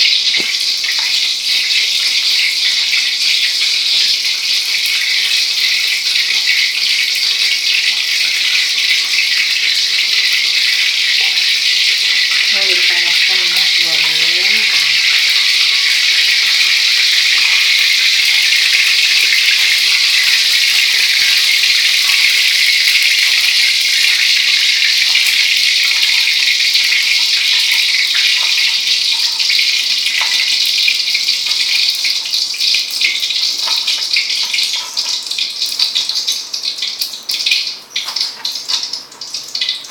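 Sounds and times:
cooking oil sizzling in a pan: 0.0s - 39.9s
person speaking: 12.4s - 16.2s.

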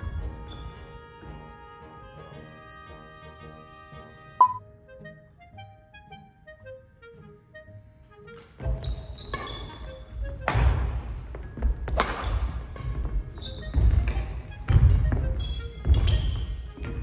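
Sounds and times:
rackets hitting shuttlecock: 10.4s - 10.9s, 11.9s - 13.1s.

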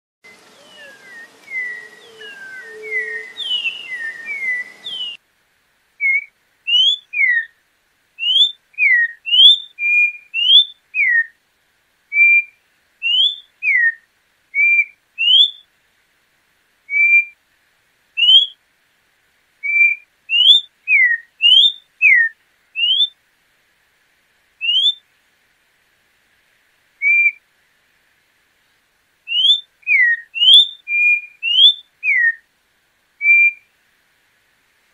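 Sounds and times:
background hiss: 0.2s - 34.9s
bird whistling song: 0.3s - 5.2s, 6.0s - 7.6s, 8.2s - 11.4s, 12.1s - 14.0s, 14.6s - 15.6s, 16.9s - 17.4s, 18.2s - 18.6s, 19.6s - 23.2s, 24.6s - 25.0s, 27.0s - 27.4s, 29.3s - 32.4s, 33.2s - 33.7s.

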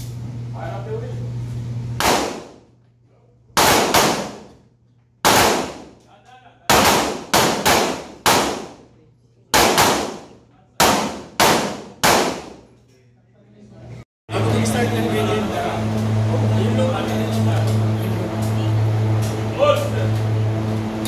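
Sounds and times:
pistol shots echoing indoors: 2.0s - 2.7s, 3.5s - 6.0s, 6.7s - 12.7s.

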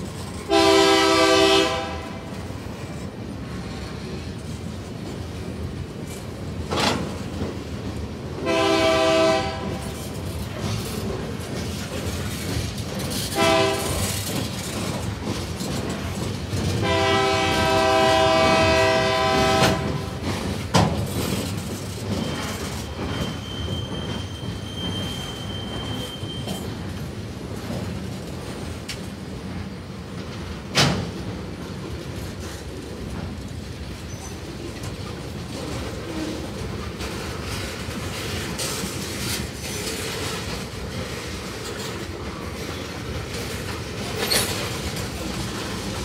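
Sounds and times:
train cars rumbling and clattering: 0.0s - 46.0s
locomotive horn blasts: 0.5s - 2.3s, 8.4s - 9.8s, 13.4s - 14.1s, 16.8s - 20.2s
faint thin wheel squeal: 22.1s - 26.7s.

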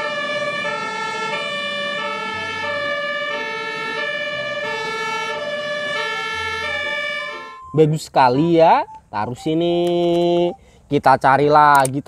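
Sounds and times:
steady high tone: 0.0s - 10.6s
repeating electronic tune: 0.9s - 9.5s.

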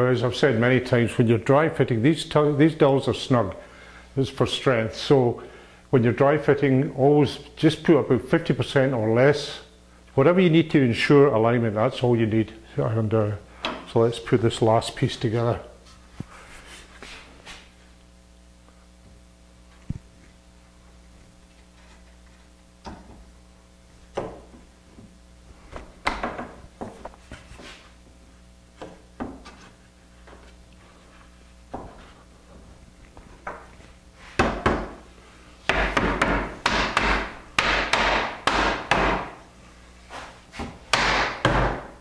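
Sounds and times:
mallet knocking wood: 35.7s - 39.4s, 40.9s - 41.9s.

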